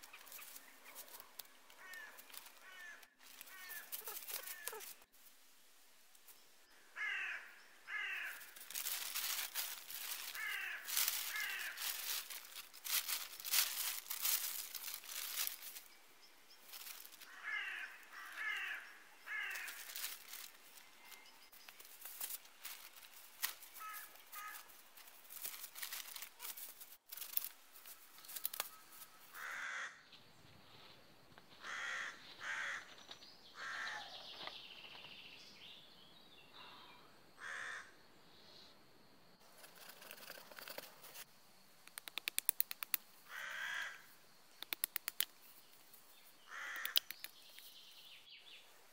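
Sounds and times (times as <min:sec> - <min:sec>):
crows cawing: 0:01.7 - 0:04.9, 0:06.8 - 0:15.5, 0:16.8 - 0:21.2, 0:23.7 - 0:24.7, 0:28.2 - 0:30.0, 0:31.6 - 0:33.0, 0:33.6 - 0:34.2, 0:37.4 - 0:38.0, 0:43.3 - 0:44.1, 0:46.5 - 0:47.1.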